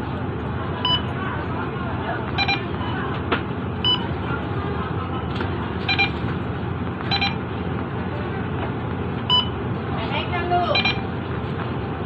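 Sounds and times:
bus engine idling hum: 0.0 - 12.0
card reader beeping: 0.8 - 1.1, 2.4 - 2.8, 3.8 - 4.2, 5.8 - 6.3, 7.0 - 7.5, 9.3 - 9.6, 10.7 - 11.1.

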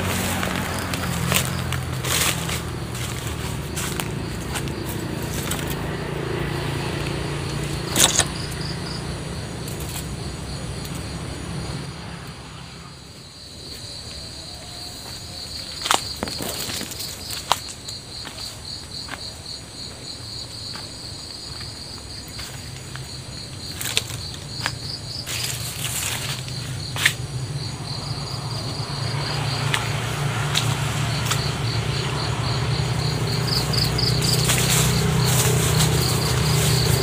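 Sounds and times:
footsteps crunching on dry leaves: 0.0 - 8.5, 14.7 - 37.0
insects trilling: 0.0 - 37.0.

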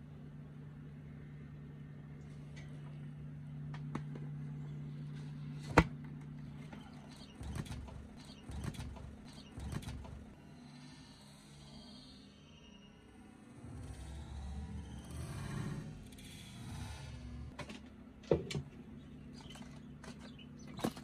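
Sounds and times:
steady low hum: 0.0 - 21.0
bird wings flapping: 7.3 - 10.3.

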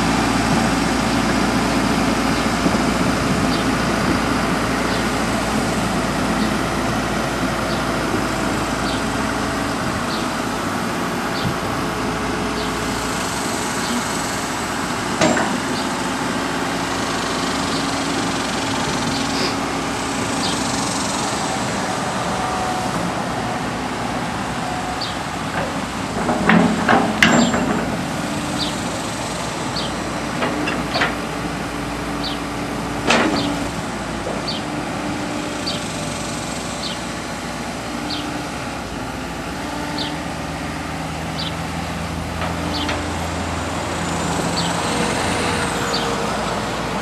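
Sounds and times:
excavator diesel engine running: 0.0 - 47.0
loud metallic knocks: 15.0 - 16.2, 25.6 - 28.7.

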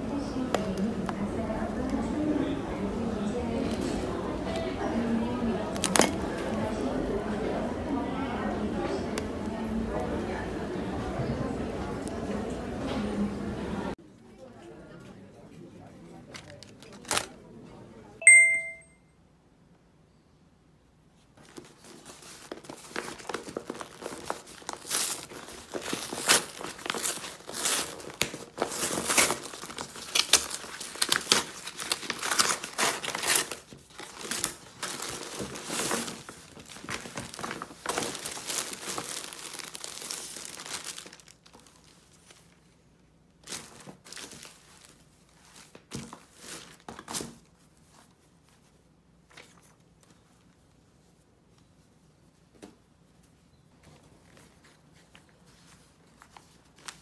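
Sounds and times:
paper bag crinkling: 21.5 - 42.6.

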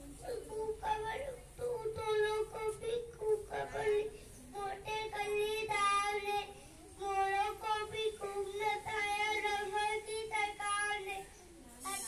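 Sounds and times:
child singing: 0.0 - 12.0.

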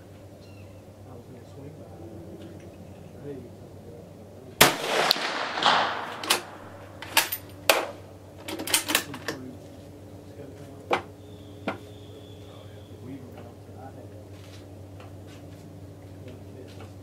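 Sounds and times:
rifle shot echo: 4.6 - 8.0
rifle bolt metallic clicks: 4.8 - 7.9.

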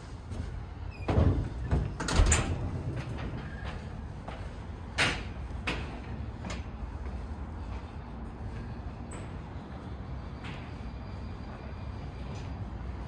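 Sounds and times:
door clunks and rattles: 1.0 - 3.4.

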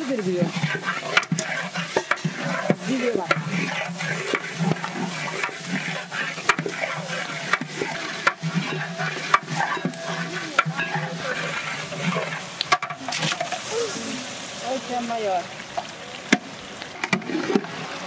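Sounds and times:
metal spatula scraping a pot: 0.0 - 14.2
spices sizzling in oil: 0.0 - 17.0.

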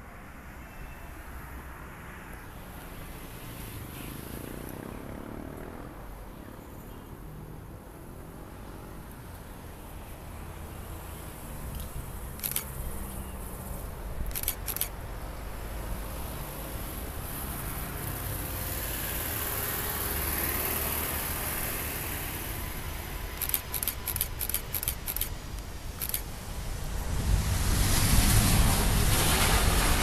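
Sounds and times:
camera shutter clicks: 12.3 - 12.8, 14.2 - 15.0, 23.4 - 26.3
jet engines rumbling: 21.0 - 30.0.

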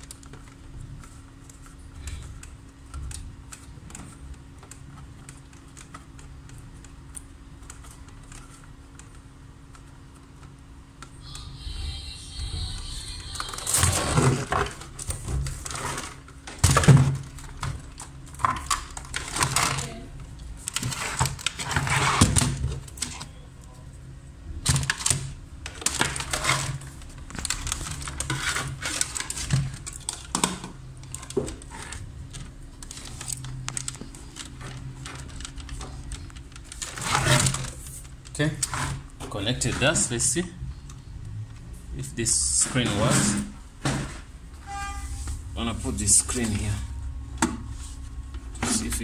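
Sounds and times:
cables and plugs rattling: 13.2 - 23.4, 24.6 - 40.5.

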